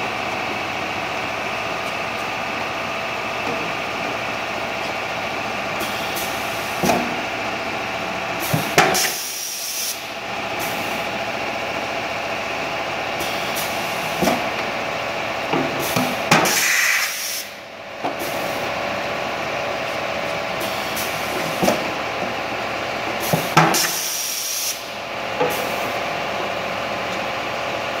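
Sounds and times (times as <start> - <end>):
compressed air hissing: 8.4 - 10.0, 15.8 - 17.6, 23.2 - 24.9.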